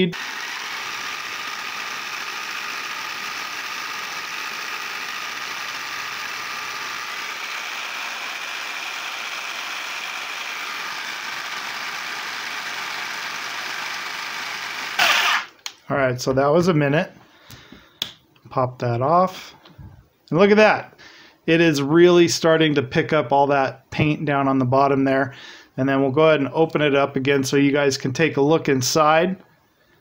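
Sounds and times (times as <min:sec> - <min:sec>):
electric saw running: 0:00.0 - 0:15.6.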